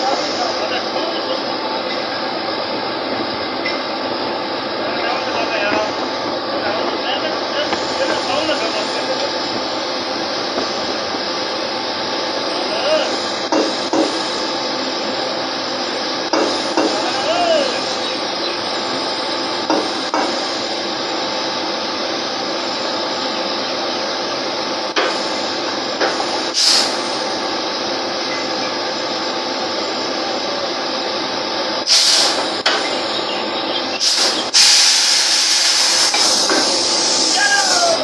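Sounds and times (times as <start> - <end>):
machinery running loudly: 0.0 - 38.0
sharp hissing bursts: 7.1 - 21.0, 24.9 - 27.8, 31.9 - 38.0.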